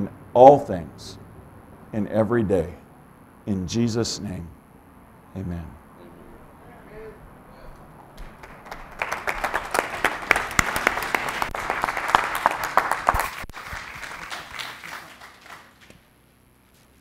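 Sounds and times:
congregation applauding: 7.7 - 16.0.

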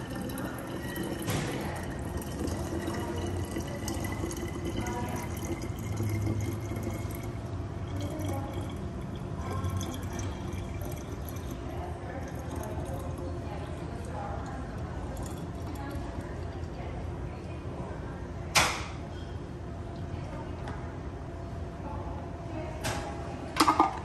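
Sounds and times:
syrup pouring into glass jug: 0.0 - 14.1, 14.8 - 16.2.

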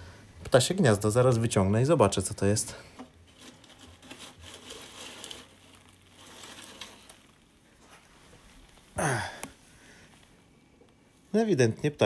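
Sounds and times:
dry grass rustling and crackling: 3.2 - 9.0.

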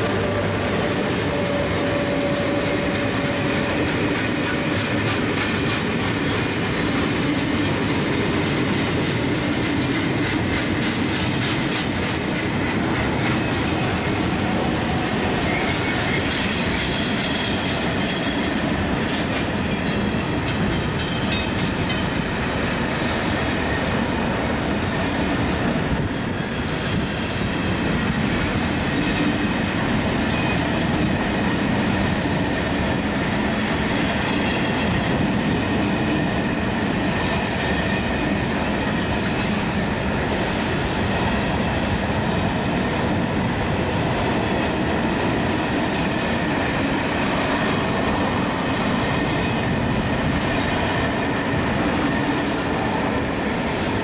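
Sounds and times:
wheels clicking over rail joints: 0.0 - 24.0
freight train rolling past: 0.0 - 54.0.

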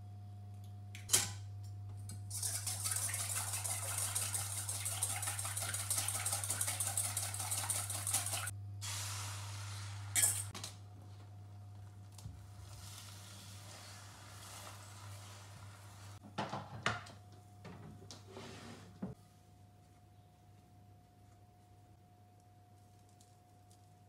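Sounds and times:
whisk beating eggs in metal bowl: 2.3 - 8.5
smooth hiss: 8.8 - 10.5.

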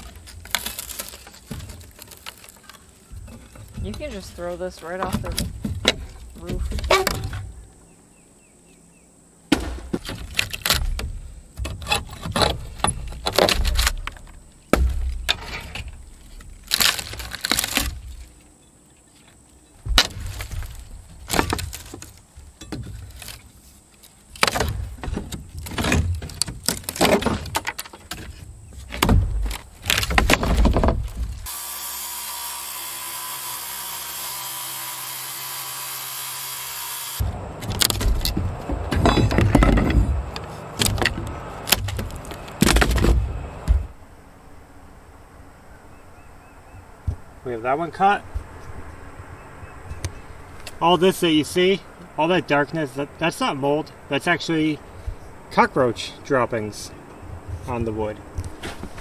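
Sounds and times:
wood cracking and splintering: 0.0 - 7.6, 9.5 - 18.5, 19.2 - 43.9
power tool cutting boards: 31.4 - 37.3.

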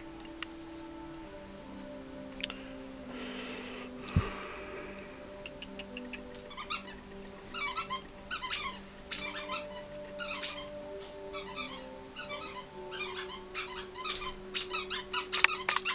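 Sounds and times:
soft background music: 0.0 - 15.9
puppy squealing: 11.4 - 15.9.

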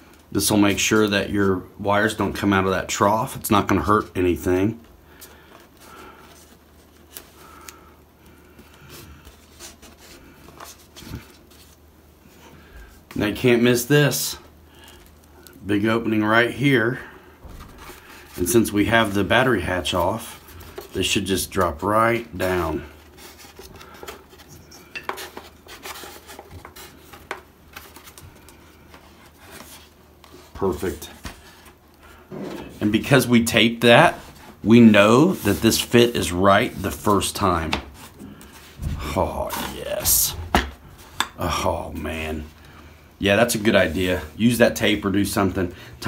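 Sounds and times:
faint steady hum: 0.0 - 46.0.

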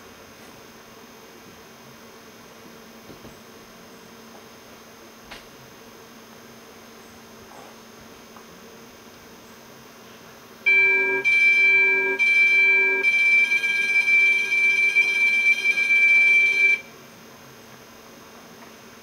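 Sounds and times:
electronic vehicle horn blasts: 10.7 - 16.9.

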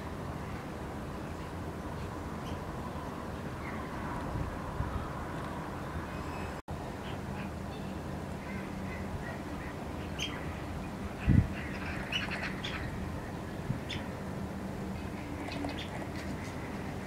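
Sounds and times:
birds calling: 5.0 - 14.2, 15.0 - 17.0.

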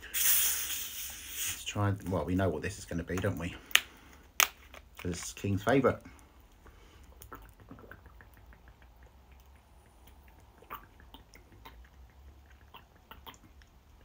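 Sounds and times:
person gulping fizzy drink: 7.0 - 14.0.

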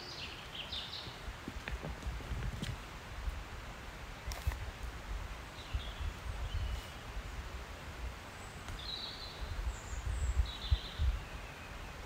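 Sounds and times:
small birds chirping: 0.0 - 1.3, 5.5 - 7.5, 8.2 - 12.0
wind buffeting microphone: 1.0 - 3.5, 4.4 - 8.2, 9.3 - 11.5.

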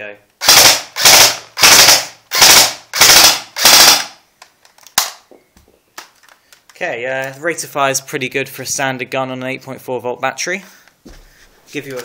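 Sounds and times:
airsoft gun full-auto bursts: 0.4 - 4.2.

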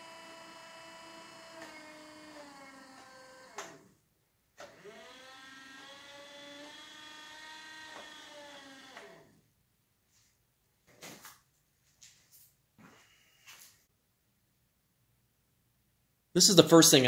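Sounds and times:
electric motor whining: 0.0 - 3.9, 4.6 - 9.3.

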